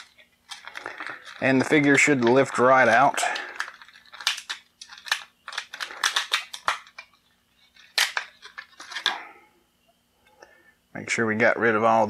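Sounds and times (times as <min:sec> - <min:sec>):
plastic packaging crackling: 0:00.0 - 0:09.2.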